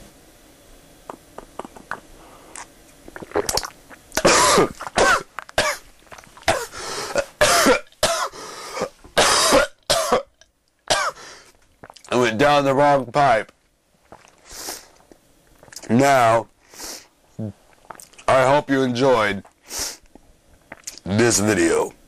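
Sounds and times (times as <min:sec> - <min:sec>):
man clearing throat: 0:04.2 - 0:05.8, 0:06.5 - 0:10.3
man coughing: 0:04.2 - 0:05.8, 0:06.5 - 0:10.3, 0:10.9 - 0:11.2.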